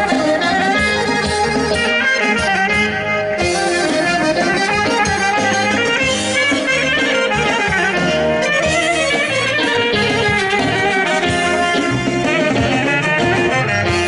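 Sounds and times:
steady drum beat: 0.0s - 14.0s
wind instruments playing melody: 0.0s - 14.0s.

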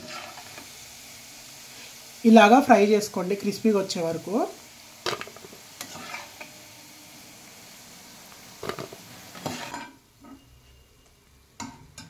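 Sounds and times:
food sizzling in hot oil: 0.0s - 12.0s
metal spoon striking pan: 11.6s - 12.0s.

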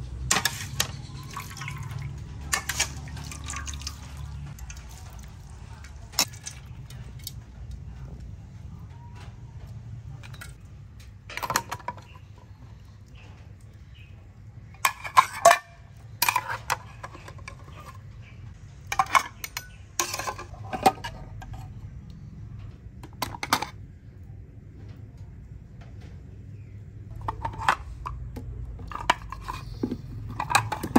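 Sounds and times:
metal spoon clinking on tins: 0.3s - 7.0s, 11.3s - 12.3s, 14.8s - 18.0s, 18.8s - 21.7s, 28.8s - 30.9s.

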